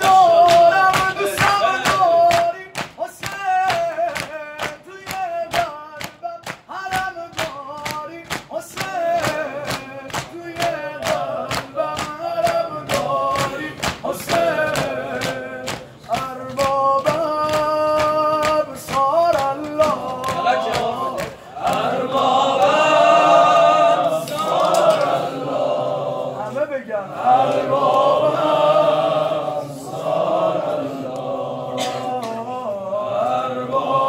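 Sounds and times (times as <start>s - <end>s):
man singing unaccompanied lament: 0.0s - 24.0s, 31.7s - 34.0s
mourners beating their chests: 0.0s - 25.2s.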